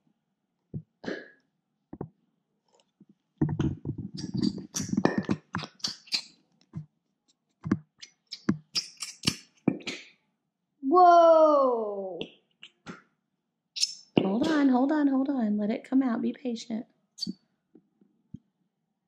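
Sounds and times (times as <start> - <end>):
glue bottle squelching and popping: 2.0 - 10.2, 13.8 - 14.6.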